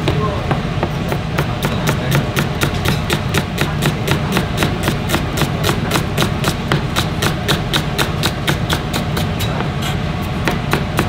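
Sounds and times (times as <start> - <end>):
knife chopping on cutting board: 0.0 - 9.7, 10.4 - 11.0.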